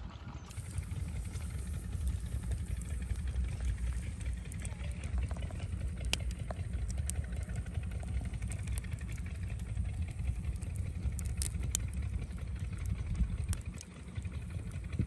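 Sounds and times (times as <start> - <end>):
low rumble: 0.0 - 15.0
campfire crackling and popping: 0.5 - 15.0.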